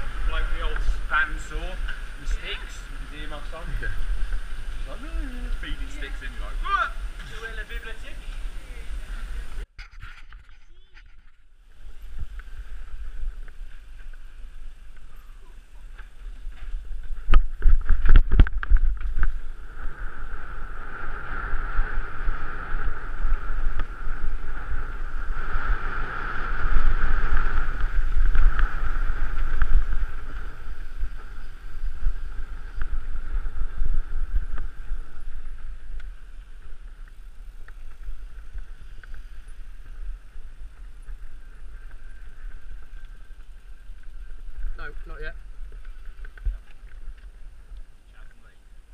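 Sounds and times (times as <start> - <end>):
tyres rolling on tarmac: 0.0 - 9.6
wind buffeting microphone: 0.0 - 9.7, 10.6 - 48.9.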